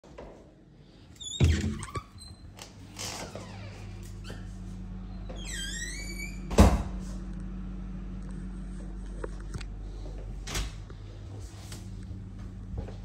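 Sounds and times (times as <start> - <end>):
door creaking: 1.2 - 4.5, 5.2 - 6.9
low hum: 2.6 - 13.0.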